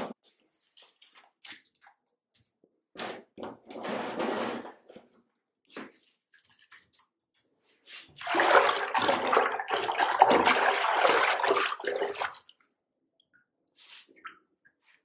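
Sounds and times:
bathwater splashing by hand: 0:07.9 - 0:15.0.

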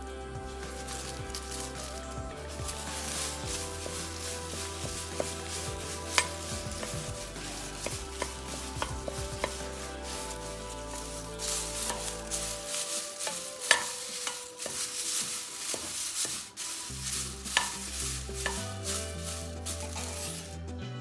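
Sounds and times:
spatula scraping leaves in a pan: 0:00.6 - 0:20.6.

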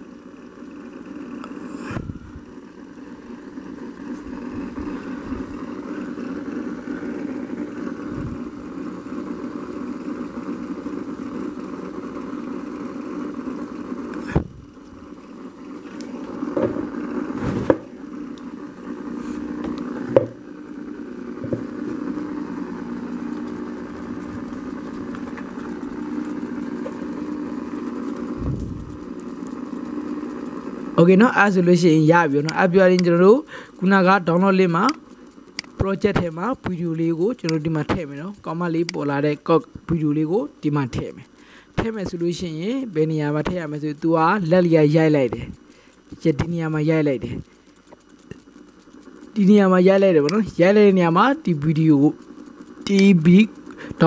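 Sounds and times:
low mechanical hum: 0:00.0 - 0:54.0
sharp clicks: 0:34.8 - 0:36.8.

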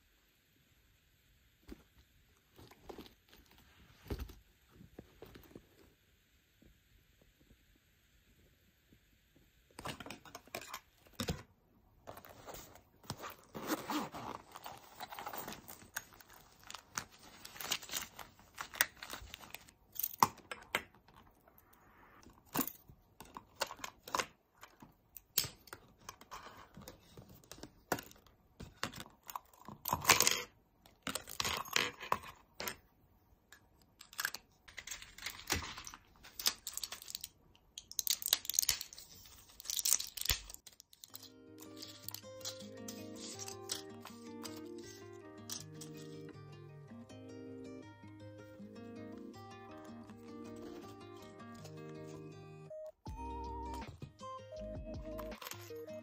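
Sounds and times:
packaging rustling and crinkling: 0:12.1 - 0:19.8, 0:34.8 - 0:44.9
zipper pulls and metal clip clinking: 0:12.5 - 0:16.8, 0:39.7 - 0:46.2.

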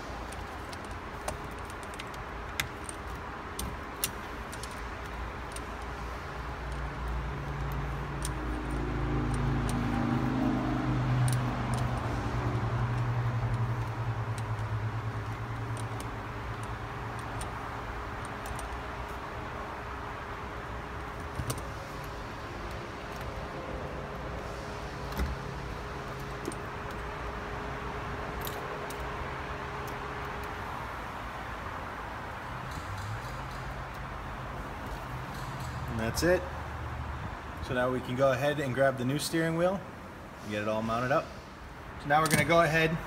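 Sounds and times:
metallic clicks of tools and bolts: 0:00.3 - 0:06.0, 0:11.2 - 0:12.2, 0:12.8 - 0:19.2, 0:32.6 - 0:34.1, 0:34.8 - 0:36.0.

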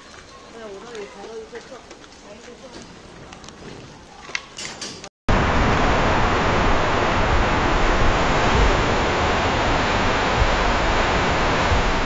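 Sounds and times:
strong wind rushing around car: 0:05.3 - 0:12.0.

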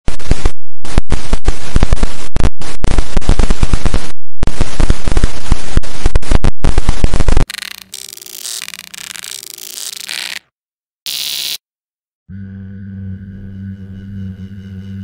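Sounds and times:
electric zaps and arcing: 0:07.4 - 0:10.4, 0:11.1 - 0:11.6.

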